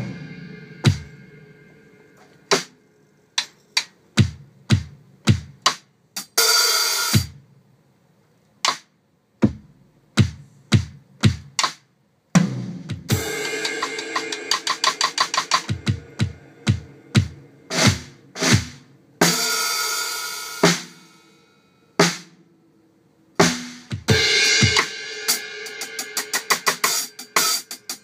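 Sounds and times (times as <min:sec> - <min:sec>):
cymbal burst: 0:00.0 - 0:02.1, 0:13.1 - 0:18.6
ringing cymbal crash: 0:00.0 - 0:02.2, 0:13.1 - 0:18.2
drum strikes: 0:00.0 - 0:02.8, 0:03.4 - 0:07.4, 0:08.7 - 0:19.7, 0:20.6 - 0:21.0, 0:22.0 - 0:22.4, 0:23.4 - 0:28.0.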